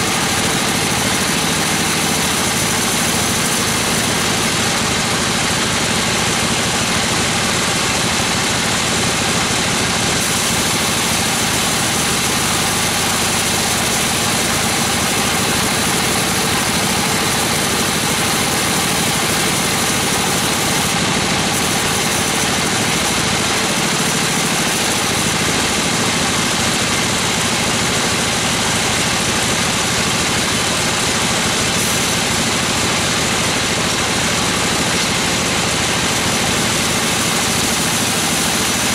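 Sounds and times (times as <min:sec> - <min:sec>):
band saw cutting timber: 0:00.0 - 0:38.9
drive engine running: 0:00.0 - 0:38.9.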